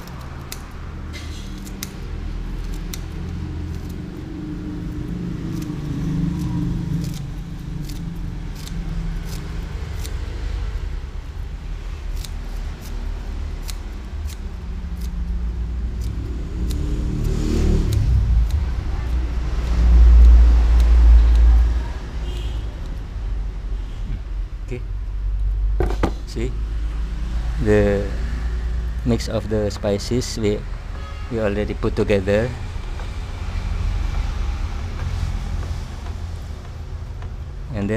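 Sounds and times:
scissors snipping: 0.0s - 10.6s, 11.9s - 22.0s.

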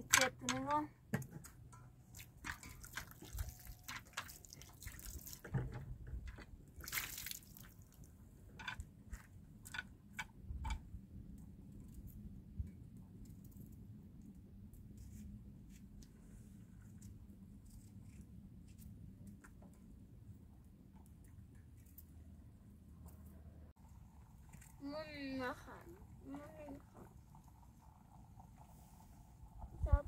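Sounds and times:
liquid dripping: 2.1s - 5.5s, 6.8s - 8.0s.

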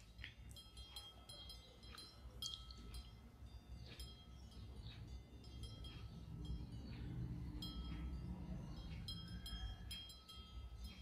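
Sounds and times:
faint metallic chime tones: 0.5s - 11.0s.

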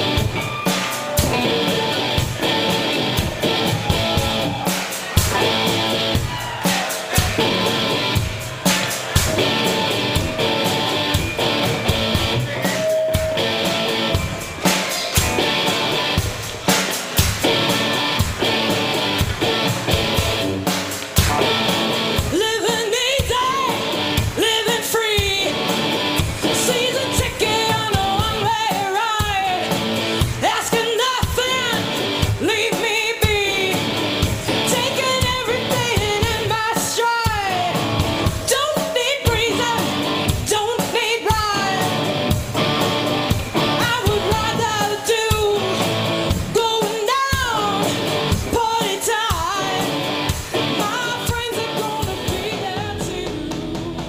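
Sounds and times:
guitar: 0.0s - 54.0s
steady drum beat: 0.0s - 54.0s
person singing: 21.4s - 42.3s, 43.6s - 54.0s.

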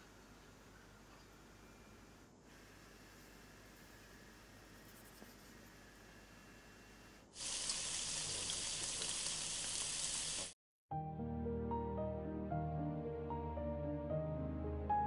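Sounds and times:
beef sizzling in a hot pan: 7.4s - 10.6s
soft slow music: 10.9s - 15.0s.

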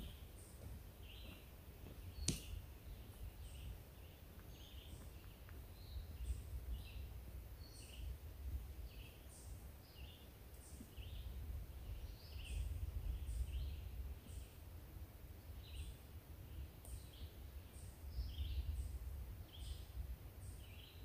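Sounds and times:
birds chirping: 0.0s - 8.2s, 8.8s - 14.7s.

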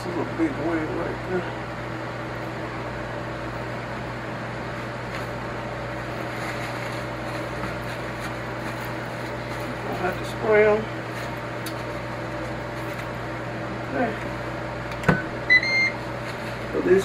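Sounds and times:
appliance fan and electrical hum: 0.0s - 17.0s.

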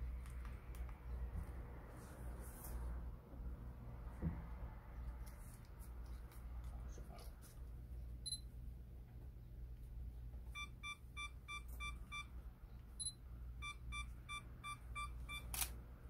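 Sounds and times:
quick lower camera beeps: 10.6s - 12.3s, 13.0s - 15.7s.

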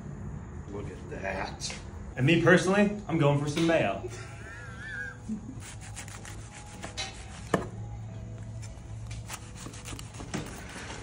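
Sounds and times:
knife sawing through crusty bread: 5.6s - 7.5s, 9.2s - 11.0s.

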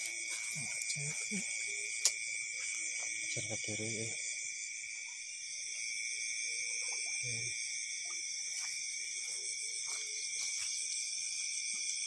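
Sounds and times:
night insects chorus: 0.0s - 12.0s.

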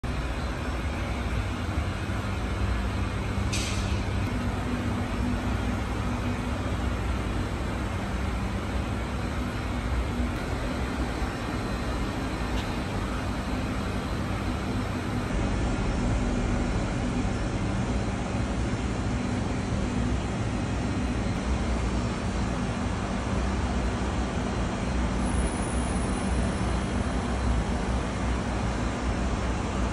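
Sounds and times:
low mechanical drone: 0.0s - 29.9s
brief high hiss: 3.5s - 4.0s.

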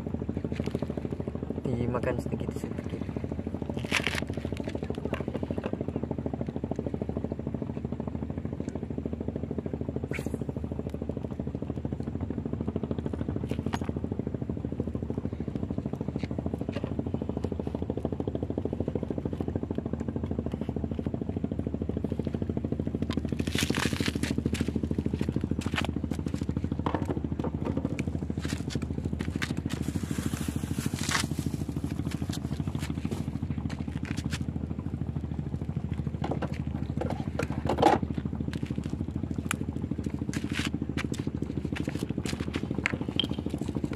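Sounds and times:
low engine hum: 0.0s - 43.9s
fishing tackle clicking and scraping: 40.3s - 43.9s.

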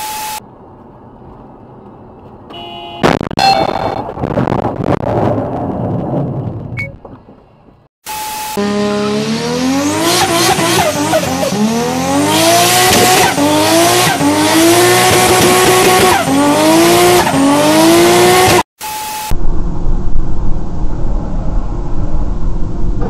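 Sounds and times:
short electronic beep: 0.0s - 0.4s, 3.4s - 4.1s, 6.8s - 7.0s, 18.8s - 19.4s
sports car engine revving: 8.6s - 18.6s.

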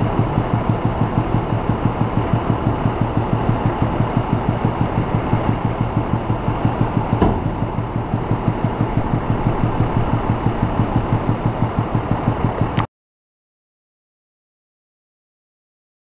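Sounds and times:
truck engine idling: 0.0s - 12.8s
dump bed knocking onto frame: 6.8s - 7.8s.

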